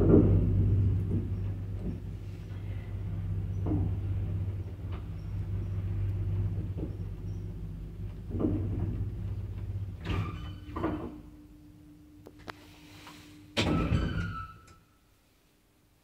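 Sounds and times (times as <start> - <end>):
lift knocks: 0.0 - 11.4
lift motor humming: 0.0 - 14.5
lift stopping with clunks: 0.0 - 14.8.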